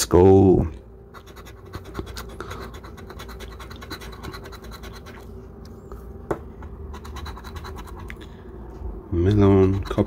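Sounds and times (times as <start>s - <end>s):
coin scraping scratch ticket: 7.0s - 8.0s, 9.6s - 10.0s.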